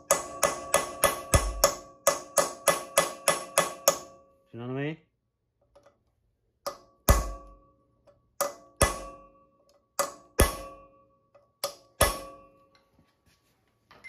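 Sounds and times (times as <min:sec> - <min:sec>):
hammer striking metal punch: 0:00.0 - 0:04.3, 0:06.6 - 0:12.6.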